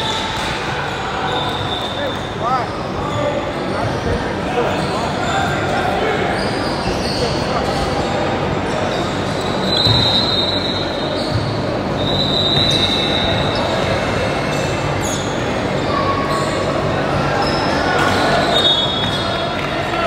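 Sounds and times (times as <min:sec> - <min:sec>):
crowd chatter: 0:00.0 - 0:20.0
shoe squeaks: 0:00.9 - 0:19.5
ball bouncing on court: 0:09.8 - 0:10.2, 0:12.4 - 0:13.6.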